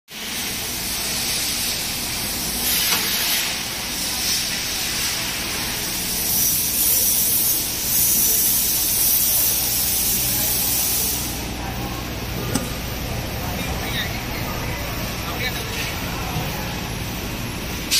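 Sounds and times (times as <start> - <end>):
hot-air blower hissing: 0.3 - 17.9
low motor hum: 11.6 - 17.9.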